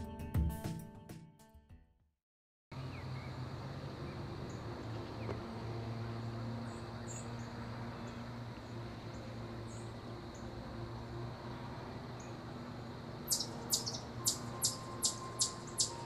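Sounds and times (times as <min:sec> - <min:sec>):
insects droning: 0:02.8 - 0:16.0.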